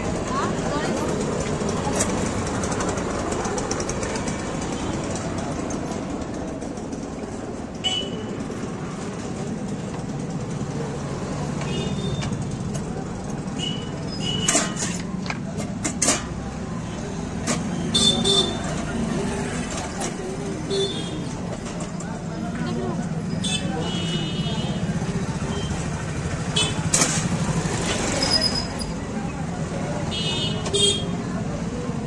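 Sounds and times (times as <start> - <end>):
traffic noise: 0.0 - 32.0.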